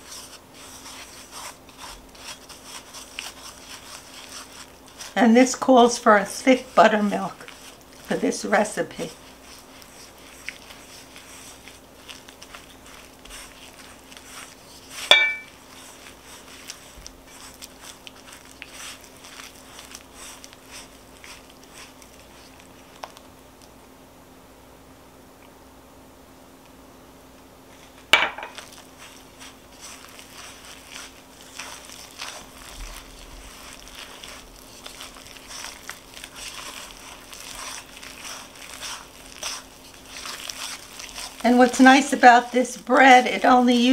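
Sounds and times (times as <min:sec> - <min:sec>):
spoon stirring batter in bowl: 0:00.0 - 0:23.7, 0:27.8 - 0:43.9
faint steady hum: 0:00.0 - 0:43.9
sharp clink against bowl: 0:15.1 - 0:15.5.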